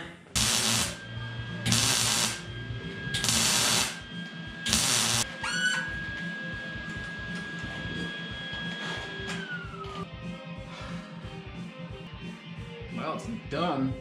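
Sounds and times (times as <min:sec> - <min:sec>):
background music: 0:00.0 - 0:14.0
welder arc crackling: 0:00.4 - 0:05.3.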